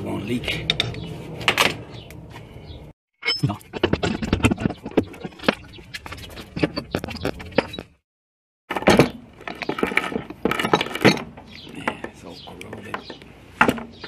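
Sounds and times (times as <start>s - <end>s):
metal clinks and scrapes: 8.7s - 12.0s.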